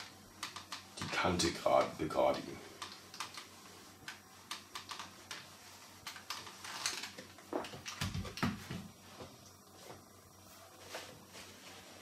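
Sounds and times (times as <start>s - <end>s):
plastic clicks and rustles: 2.8s - 8.8s.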